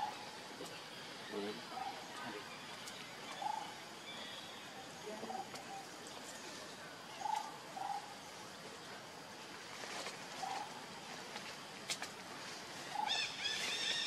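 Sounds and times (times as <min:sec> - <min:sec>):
faint clicks: 0:02.8 - 0:03.5.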